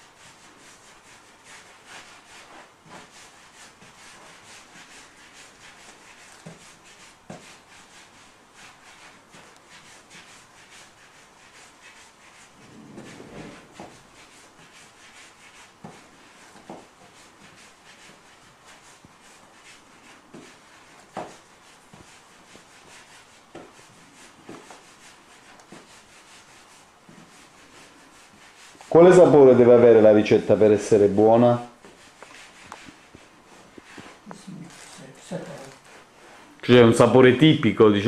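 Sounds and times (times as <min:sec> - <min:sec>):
hands rubbing dough on wood: 0:00.0 - 0:38.0.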